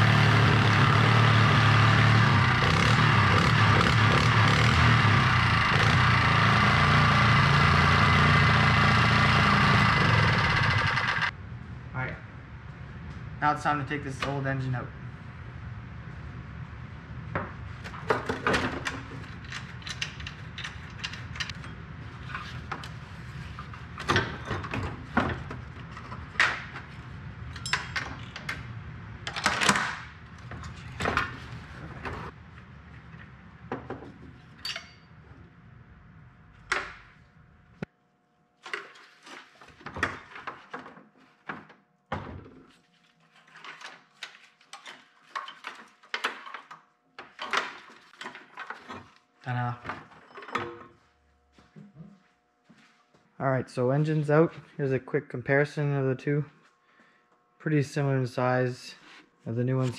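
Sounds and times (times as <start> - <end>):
hand tools and metal parts clanking: 17.9 - 28.6, 30.4 - 32.3, 33.8 - 35.4, 42.7 - 51.0.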